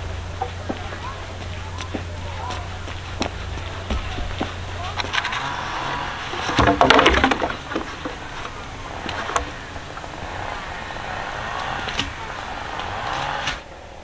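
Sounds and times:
bamboo poles knocking together: 0.0 - 10.5.

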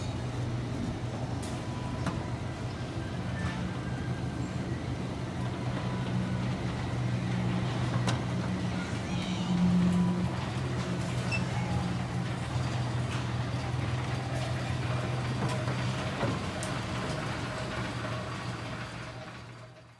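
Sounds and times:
miniature train engine drone: 0.0 - 19.9.

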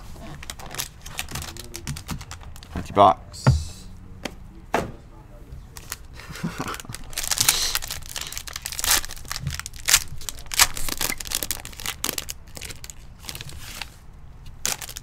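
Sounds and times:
foil wrapper crinkling and tearing: 0.2 - 2.7, 5.8 - 14.0, 14.6 - 15.0.

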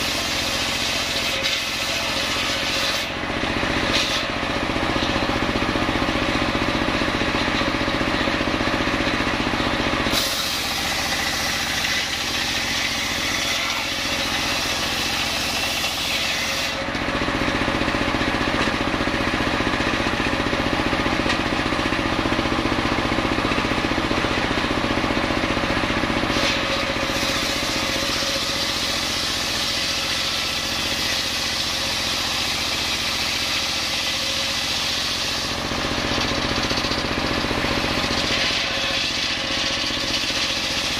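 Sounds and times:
saw cutting wood hissing: 0.0 - 6.3, 10.0 - 17.4, 25.9 - 40.9
engine running: 0.0 - 40.9.

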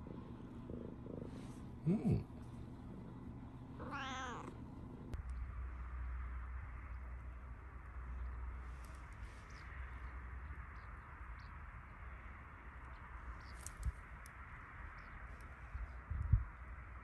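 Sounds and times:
low rumble: 4.9 - 11.5
small birds chirping: 12.6 - 16.6.

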